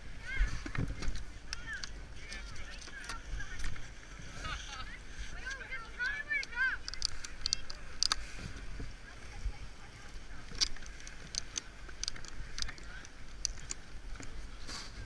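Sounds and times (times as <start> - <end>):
binding straps ratcheting clicks: 6.4 - 8.2, 10.6 - 13.8.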